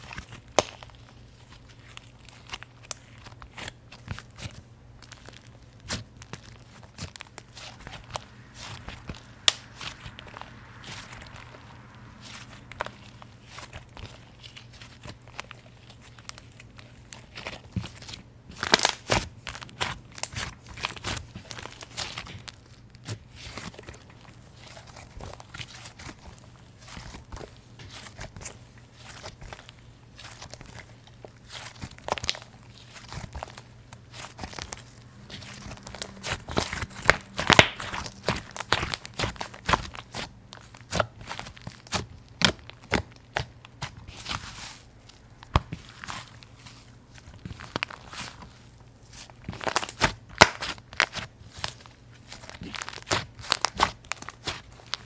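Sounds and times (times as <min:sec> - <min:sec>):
slime squished by hand: 0:00.0 - 0:55.0
small crackles and pops: 0:08.8 - 0:10.4, 0:29.1 - 0:43.8, 0:49.4 - 0:55.0.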